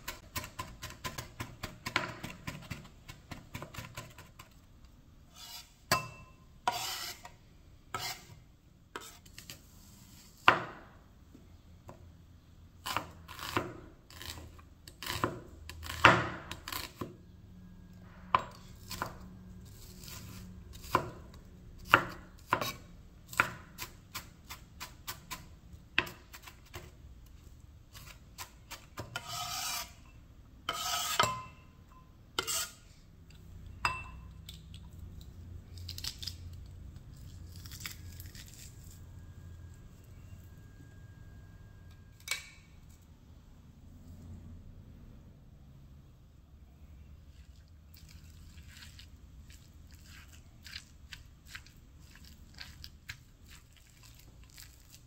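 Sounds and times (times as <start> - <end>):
knife scraping board: 5.3 - 5.8, 6.7 - 7.3, 7.9 - 8.4, 9.0 - 10.6, 22.5 - 22.9, 27.9 - 30.1, 30.7 - 31.4, 32.4 - 32.9.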